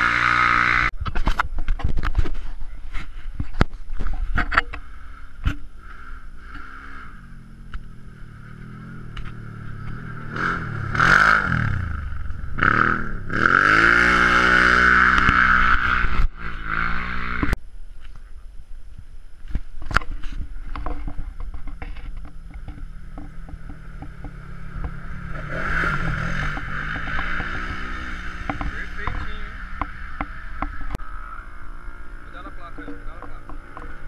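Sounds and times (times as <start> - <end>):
utility vehicle engine revving: 0.0 - 1.0, 4.7 - 17.6, 20.8 - 34.0.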